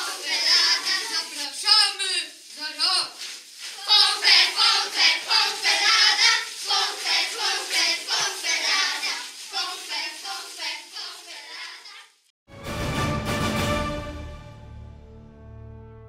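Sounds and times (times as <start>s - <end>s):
children singing together: 0.0s - 1.8s, 3.7s - 12.0s.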